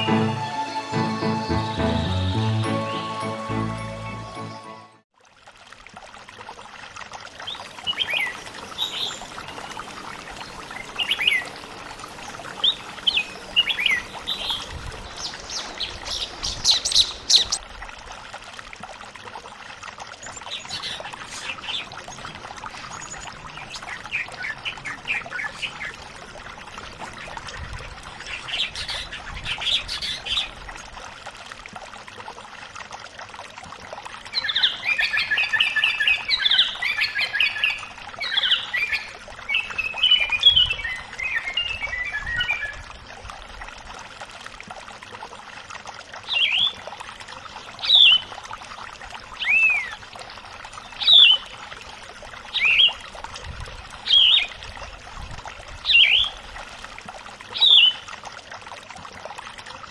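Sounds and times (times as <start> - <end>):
trickle of running water: 5.1 - 59.9
birds whistling song: 49.4 - 50.0, 55.9 - 56.4, 57.6 - 58.0.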